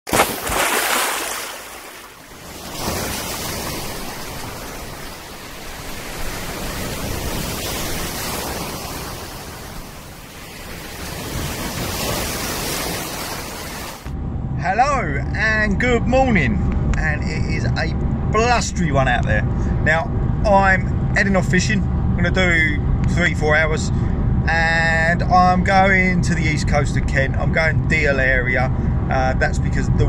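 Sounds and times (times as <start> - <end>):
sea surf breaking on shore: 0.1 - 14.1.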